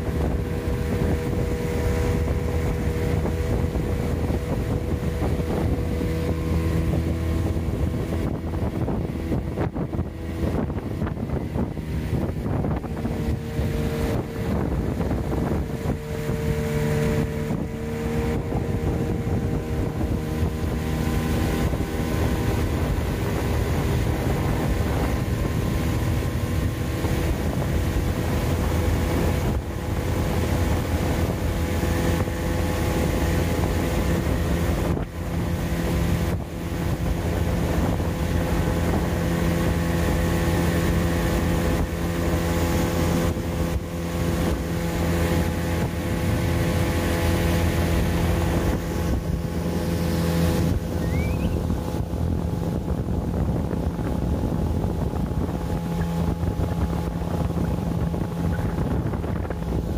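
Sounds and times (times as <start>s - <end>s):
boat motor drone: 0.0s - 59.9s
wind buffeting microphone: 0.0s - 59.9s.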